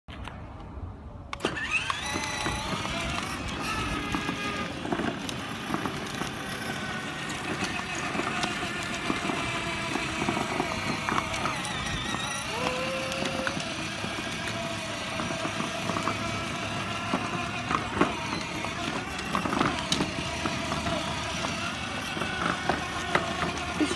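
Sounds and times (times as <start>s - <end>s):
electric motor whine: 1.4s - 23.9s
plastic wheels rolling and rattling: 1.4s - 23.9s.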